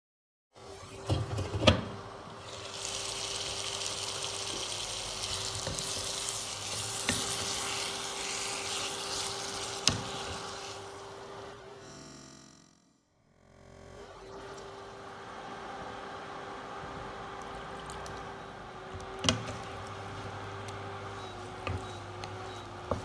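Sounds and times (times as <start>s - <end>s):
chicken sizzling in pan: 2.4s - 11.1s.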